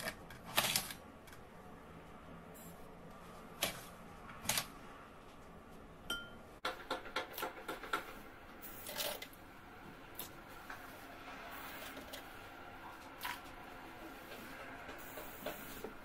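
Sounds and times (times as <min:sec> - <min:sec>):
metal spoon tapping glass jug: 0:06.1 - 0:06.4.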